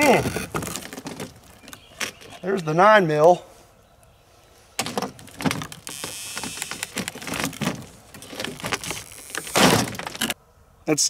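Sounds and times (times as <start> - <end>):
broken glass crackling and scraping: 4.8 - 10.4.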